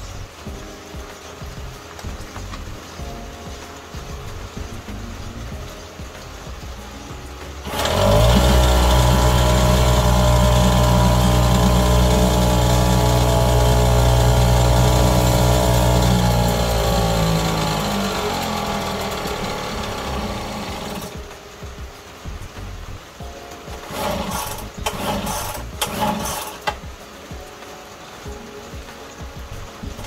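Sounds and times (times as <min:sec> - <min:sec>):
small outboard motor running: 0:07.6 - 0:21.2, 0:23.8 - 0:26.8.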